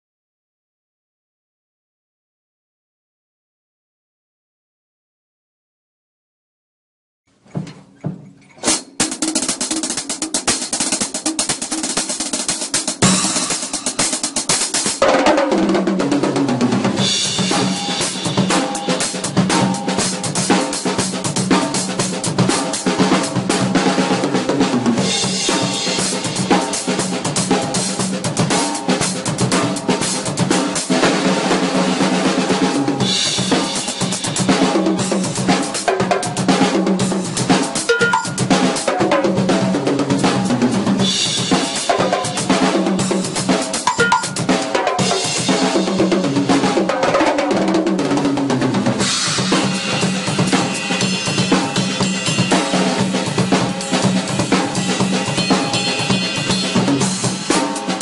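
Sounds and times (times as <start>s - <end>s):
drum kit groove: 7.4s - 58.0s
cymbal wash: 53.7s - 58.0s.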